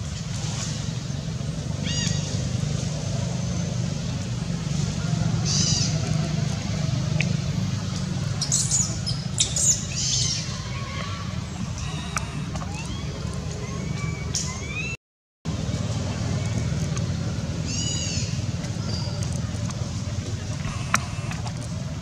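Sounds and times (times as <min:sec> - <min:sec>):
steady low hum: 0:15.5 - 0:22.0.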